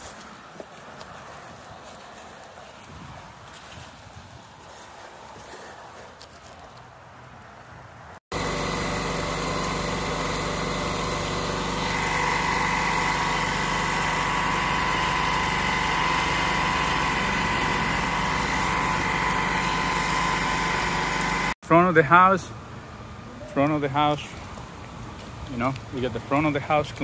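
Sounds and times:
pressure washer engine running: 8.3 - 21.6
water spraying in gutter: 8.3 - 21.6.

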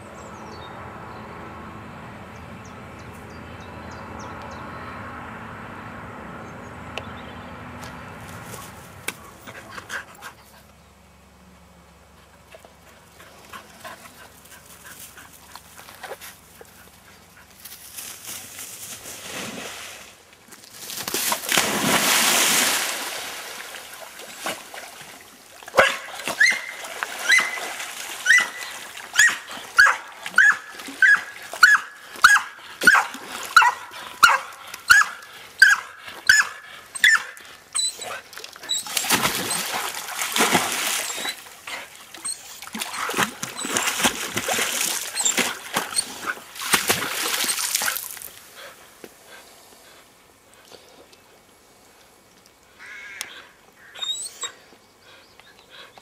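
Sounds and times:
water splashing: 20.8 - 35.5, 37.2 - 48.6
dog barking: 25.8 - 26.6, 28.3 - 37.4.

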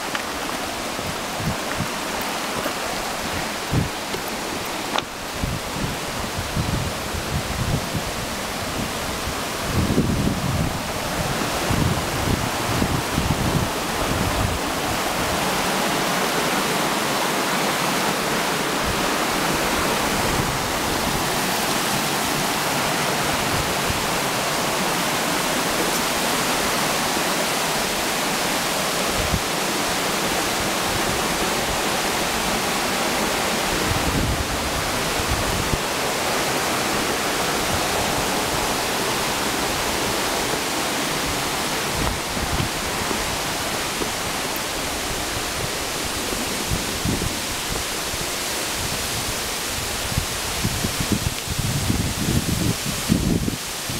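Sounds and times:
waterfall rushing: 0.0 - 53.9.

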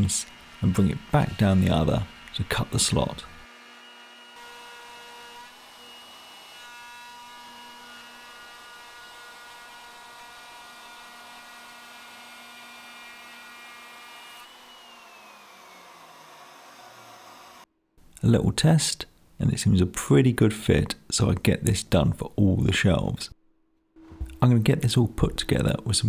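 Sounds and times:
router motor winding down: 0.0 - 17.7
router whining: 0.0 - 17.7.

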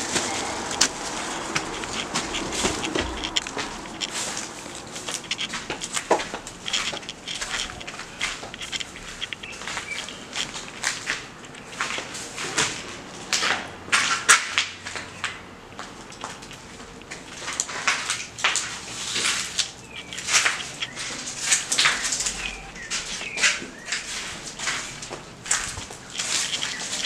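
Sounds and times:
scrapes and knocks: 0.0 - 12.8
crunching footsteps: 0.0 - 27.0.

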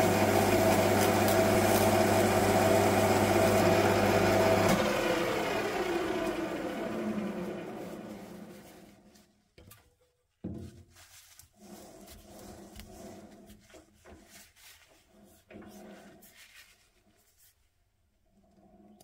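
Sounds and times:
lathe motor hum: 0.0 - 9.0
emery paper rubbing metal: 10.8 - 17.8.

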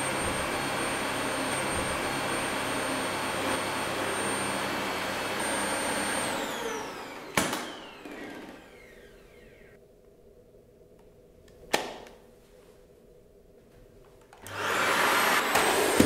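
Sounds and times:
vacuum cleaner motor whining: 0.0 - 9.8, 14.4 - 16.0.

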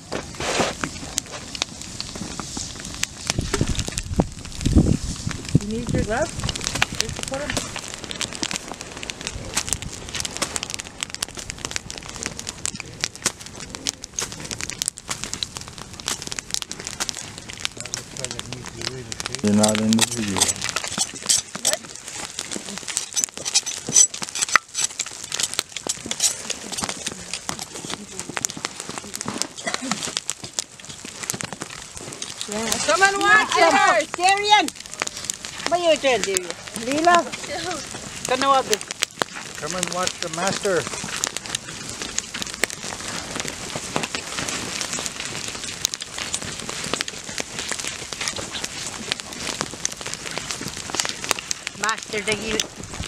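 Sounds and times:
steady hiss: 0.0 - 53.0
gloved hand scraping charred hair: 19.4 - 34.6.

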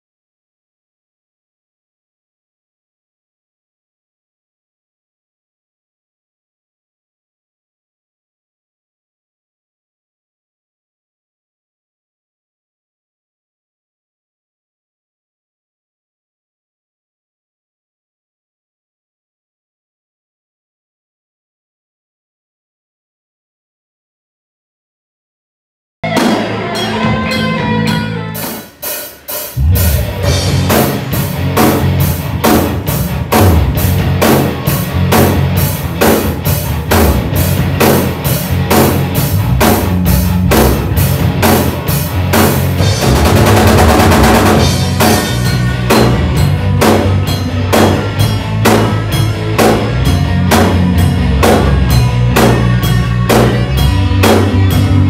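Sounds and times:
rock band playing: 26.0 - 55.0.

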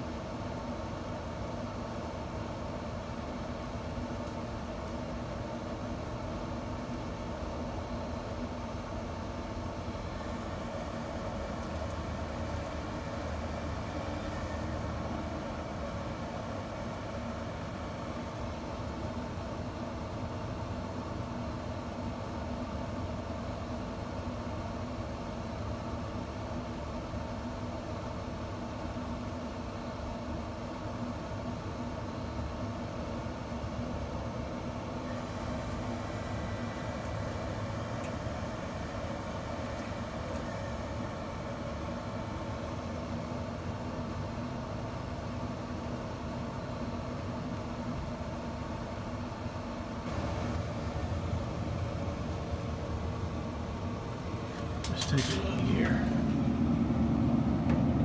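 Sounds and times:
smoker combustion fan hum: 0.0 - 58.0
faint high whine: 6.5 - 20.4, 49.3 - 58.0.

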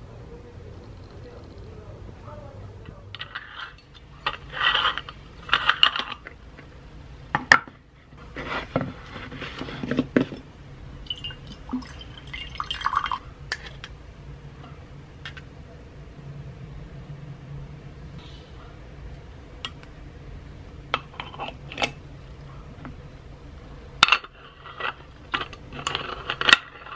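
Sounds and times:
coffee being spooned: 11.1 - 13.9.

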